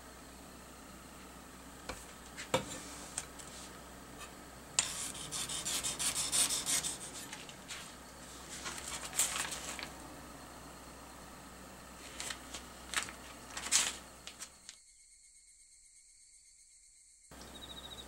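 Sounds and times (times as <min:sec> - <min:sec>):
plastic film crackling: 0:08.5 - 0:09.9, 0:12.0 - 0:14.6.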